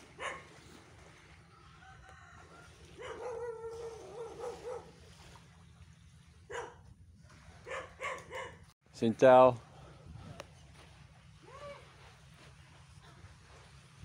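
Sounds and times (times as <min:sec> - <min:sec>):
low steady hum: 0:00.0 - 0:14.0
dog barking: 0:00.2 - 0:00.5, 0:03.0 - 0:04.9, 0:06.5 - 0:06.8, 0:07.6 - 0:08.6.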